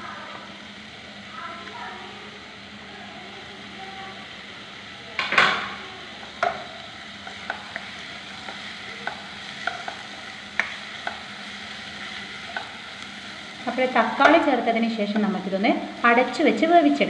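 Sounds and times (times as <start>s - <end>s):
vegetables sizzling in oil: 0.0s - 17.0s
spatula clicking against pan: 6.4s - 11.3s, 12.4s - 13.1s.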